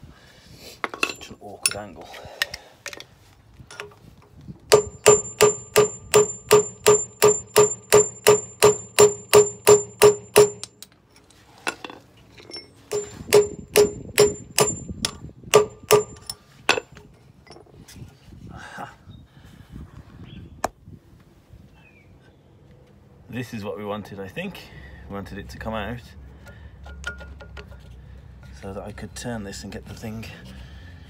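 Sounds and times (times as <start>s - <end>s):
hammer striking metal punch: 4.7s - 10.8s, 12.9s - 16.9s.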